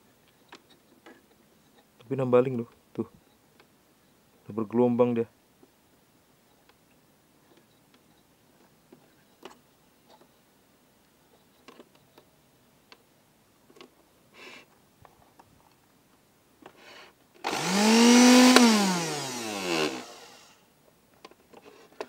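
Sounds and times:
blender motor whining: 0:17.4 - 0:20.6.

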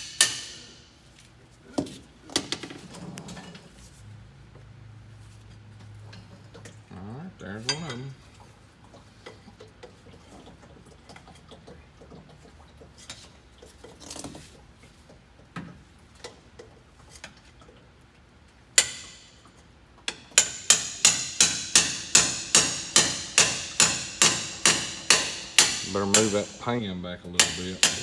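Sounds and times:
hammer striking metal punch: 0:00.0 - 0:00.8, 0:20.1 - 0:26.6, 0:27.4 - 0:28.0.

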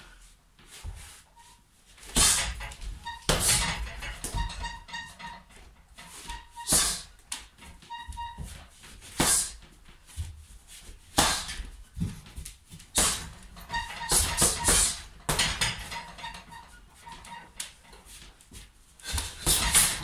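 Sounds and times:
punches hitting heavy bag: 0:11.2 - 0:11.7, 0:12.9 - 0:13.4, 0:14.0 - 0:15.8, 0:19.2 - 0:20.0.

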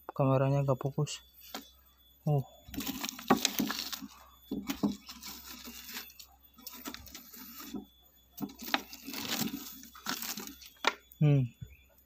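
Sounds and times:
fingers handling dry honeycomb: 0:02.6 - 0:11.2.

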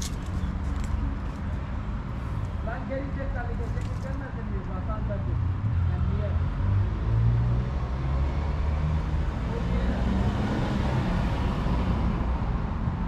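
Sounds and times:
vehicle engine rumbling: 0:00.0 - 0:06.3
street traffic noise: 0:00.0 - 0:13.0.

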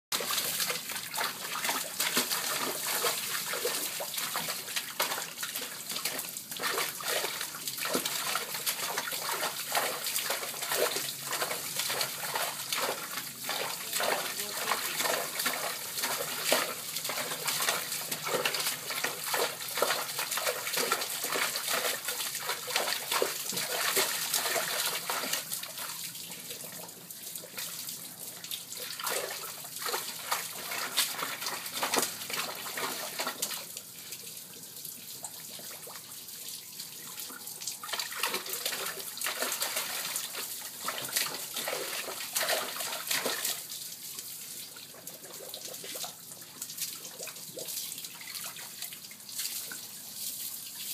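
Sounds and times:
dog paws splashing water: 0:00.1 - 0:26.6, 0:28.5 - 0:33.8, 0:37.7 - 0:43.8.

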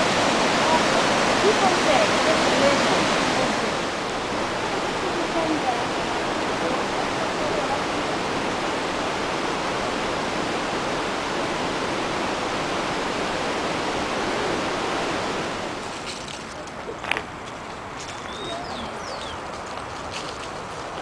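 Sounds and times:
waterfall roaring: 0:00.0 - 0:21.0.

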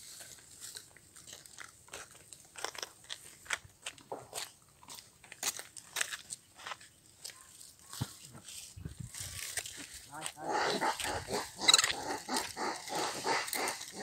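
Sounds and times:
close crunches and crackles: 0:00.0 - 0:14.0.

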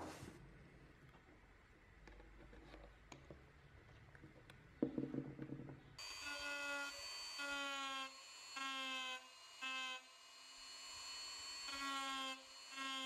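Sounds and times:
rotary tool whining on wood: 0:06.0 - 0:13.0.

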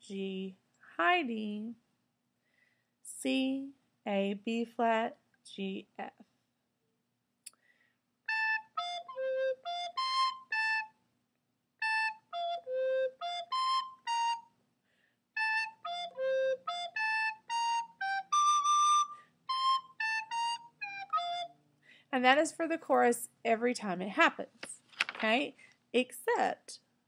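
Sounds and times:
soprano recorder notes: 0:08.3 - 0:11.0, 0:11.8 - 0:14.5, 0:15.4 - 0:21.6.

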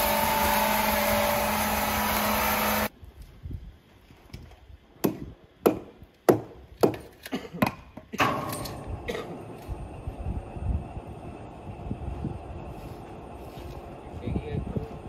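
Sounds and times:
sawing machine motor humming: 0:00.0 - 0:02.9.

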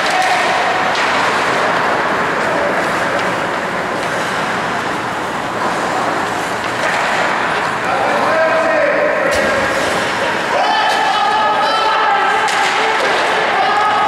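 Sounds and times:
faint clicks of sticks and puck: 0:00.0 - 0:05.0, 0:05.6 - 0:07.9, 0:12.4 - 0:13.9
skates scraping on ice: 0:00.1 - 0:08.4.

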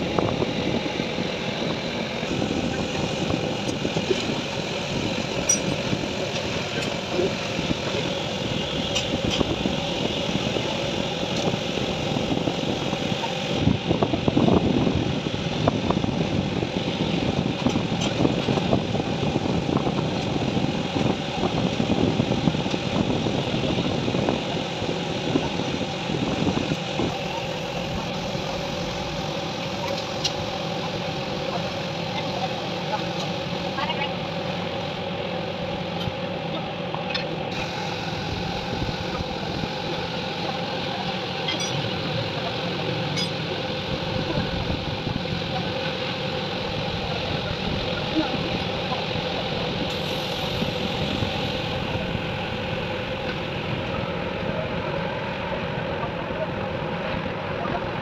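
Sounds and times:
steady mechanical running noise: 0:00.0 - 0:58.0.

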